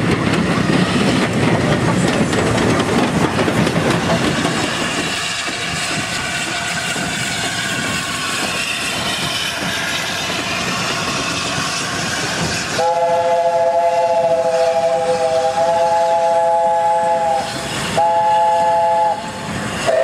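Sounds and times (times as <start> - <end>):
rail-joint clatter: 0.0 - 12.9
steam locomotives running slowly: 0.0 - 20.0
hiss of steam: 4.1 - 20.0.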